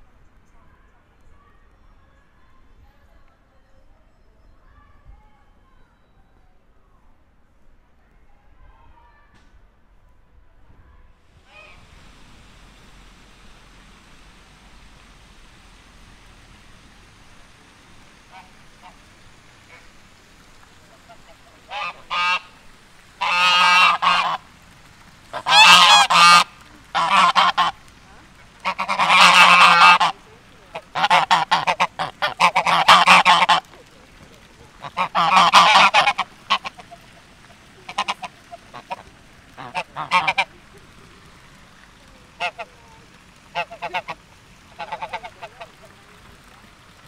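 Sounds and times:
geese honking: 11.5s - 24.6s, 25.2s - 46.6s.

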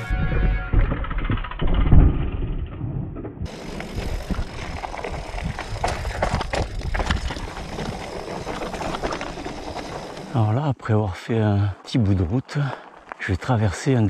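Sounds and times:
bike knocks and rattles: 0.2s - 10.3s
bike tyres crunching on dirt: 3.4s - 10.4s, 12.0s - 14.0s.

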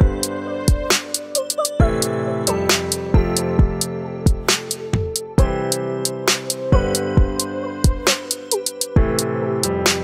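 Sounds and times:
steady drum beat: 2.8s - 9.2s.

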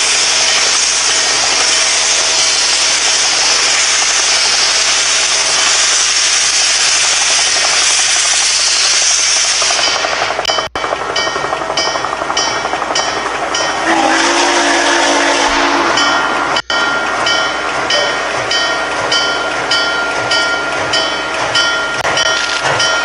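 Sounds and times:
steam locomotive hissing: 0.0s - 23.0s
steam whistle: 13.8s - 16.6s.

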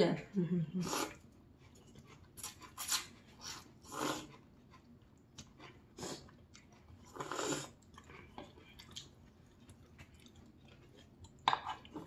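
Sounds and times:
noodles being slurped: 0.8s - 4.5s, 5.4s - 9.1s.

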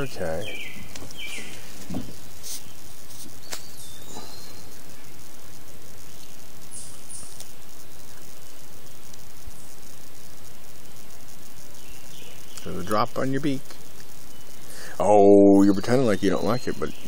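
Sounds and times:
faint high chirps: 0.0s - 17.0s
insects: 0.0s - 17.0s.

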